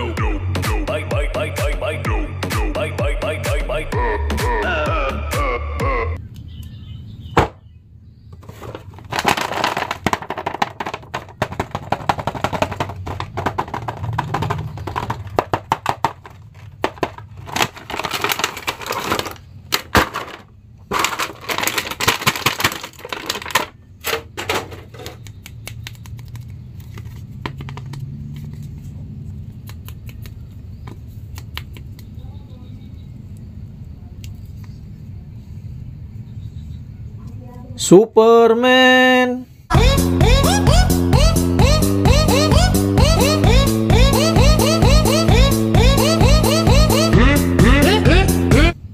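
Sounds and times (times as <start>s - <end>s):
plastic and cardboard crinkling: 8.4s - 30.2s.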